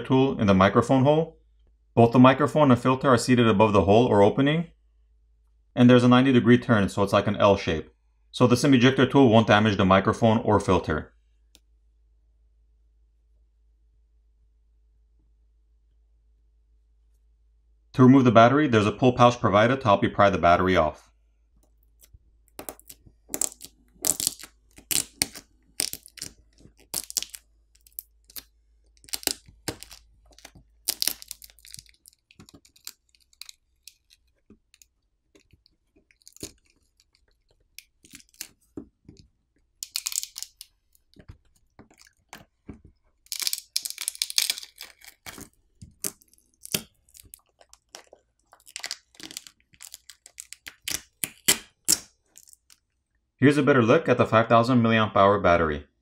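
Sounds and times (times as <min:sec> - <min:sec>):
battery adhesive crackling and tearing: 0:22.0 - 0:38.8, 0:39.8 - 0:42.5, 0:43.2 - 0:52.8.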